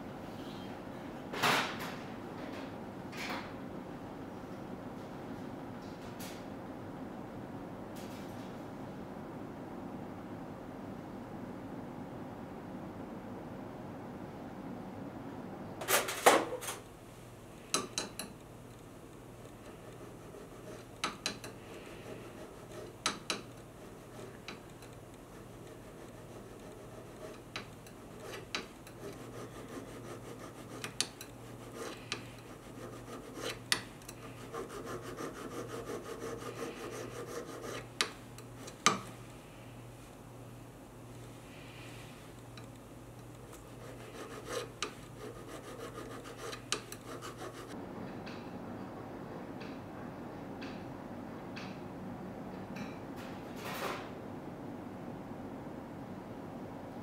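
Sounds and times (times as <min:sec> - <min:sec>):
faint steady hum: 0:00.0 - 0:53.4
needle file scraping metal: 0:19.5 - 0:39.0, 0:43.5 - 0:47.8.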